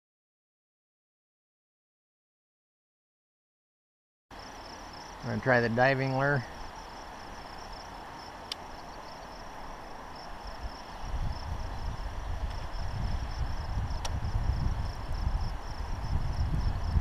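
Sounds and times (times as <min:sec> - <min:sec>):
insects chirring: 0:04.3 - 0:17.0
low rumble on microphone: 0:10.4 - 0:17.0
sharp clicks: 0:14.0 - 0:14.2.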